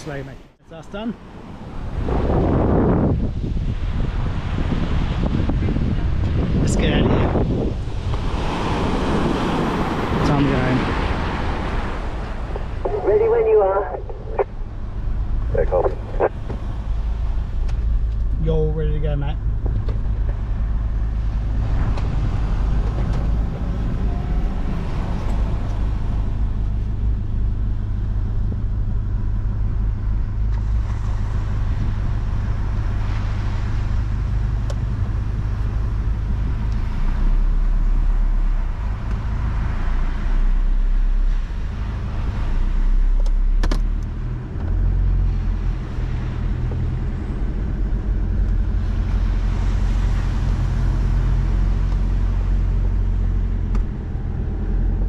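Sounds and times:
car engine drone from cabin: 11.9 - 55.0.

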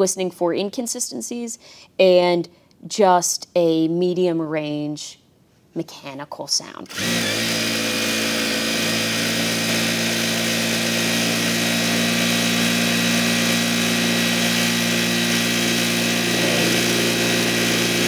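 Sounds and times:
sewing machine whirring: 6.9 - 18.0.

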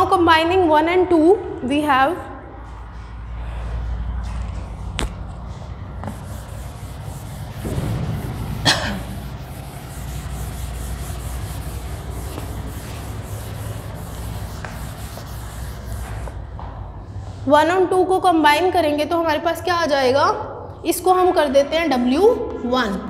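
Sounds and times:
low steady hum: 0.0 - 18.0
duster rubbing on chalkboard: 5.6 - 16.6
sharp knock: 7.4 - 10.2.

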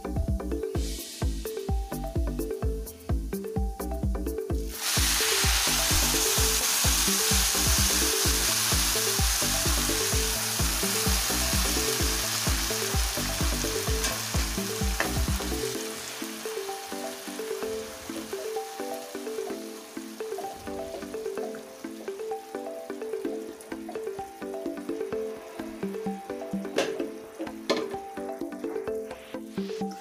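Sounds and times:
background music with steady beat: 0.0 - 30.0
water poured into hot oil sizzling: 4.7 - 22.7.

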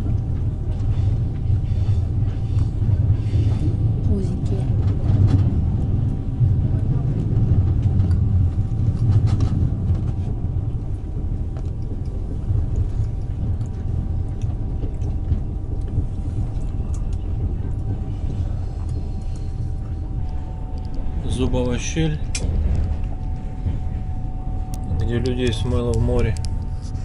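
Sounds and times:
train rumbling: 0.0 - 27.0
faint steady hum: 11.8 - 27.0.

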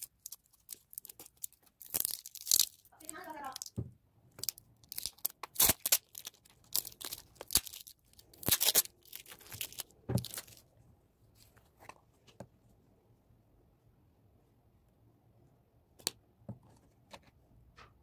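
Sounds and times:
plastic wrapping crinkling and tearing: 0.0 - 3.8, 4.4 - 10.6.

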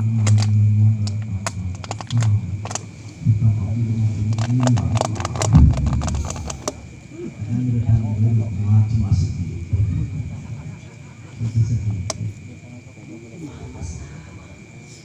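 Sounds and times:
clicks and crackle: 0.0 - 3.2, 4.2 - 6.9, 11.9 - 12.2
men chanting: 0.0 - 12.4.

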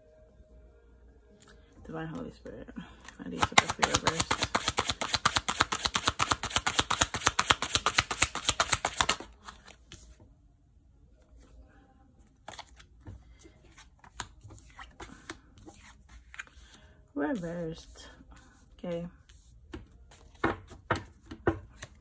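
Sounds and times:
cards shuffling: 3.0 - 10.0, 12.4 - 16.8
cards tapping and sliding on table: 3.4 - 9.3.

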